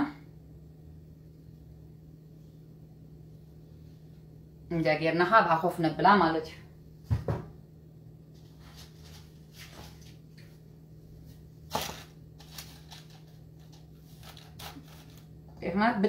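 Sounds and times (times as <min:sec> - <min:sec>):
steady low hum: 0:00.0 - 0:16.0
soft kitchen knocks: 0:07.0 - 0:07.6.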